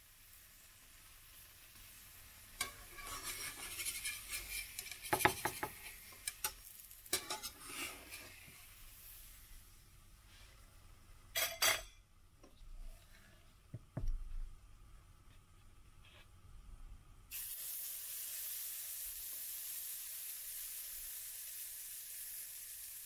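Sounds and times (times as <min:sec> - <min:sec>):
pancake sizzling in frying pan: 0:00.0 - 0:10.4, 0:17.3 - 0:23.0
spatula scraping pan: 0:02.6 - 0:08.7.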